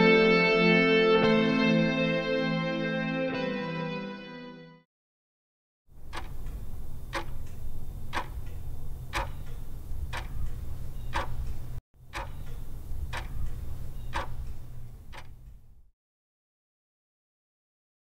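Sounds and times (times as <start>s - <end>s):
clock-like sharp ticks: 6.0s - 15.8s
steady low rumble: 6.0s - 15.9s.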